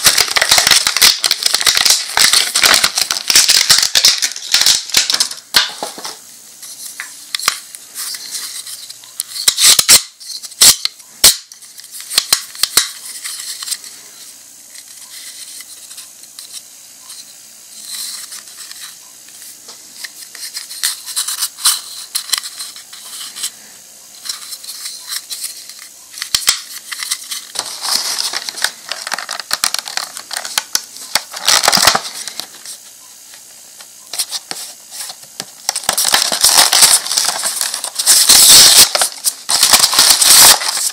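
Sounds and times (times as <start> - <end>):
packaging box rustling and crackling: 0.0 - 6.2, 24.2 - 32.8, 34.1 - 40.9.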